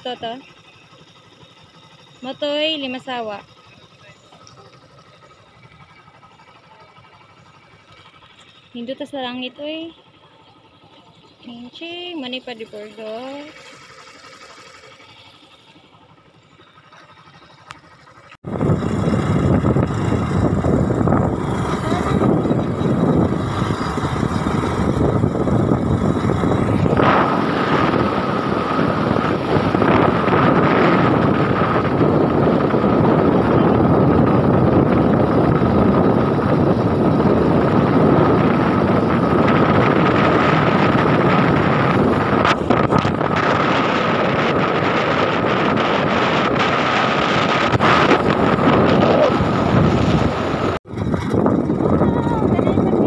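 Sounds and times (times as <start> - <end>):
steady high whine: 0.0 - 50.8
road vehicle running: 0.0 - 53.0
wind buffeting microphone: 18.4 - 53.0.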